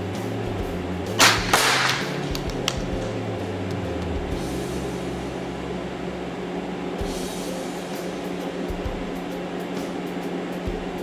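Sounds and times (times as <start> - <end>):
rifle shot crack: 1.2 - 2.1.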